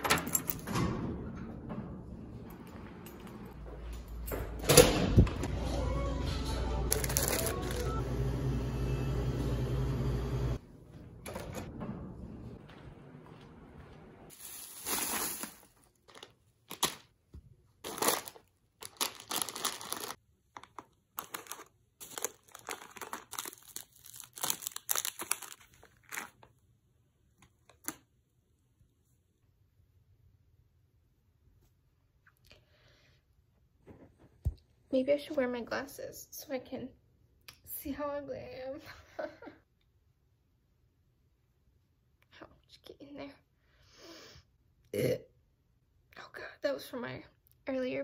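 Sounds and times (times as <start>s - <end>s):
low store hum: 0.0s - 14.8s
plastic packets crinkling: 6.9s - 7.8s, 14.4s - 17.2s, 17.8s - 26.6s.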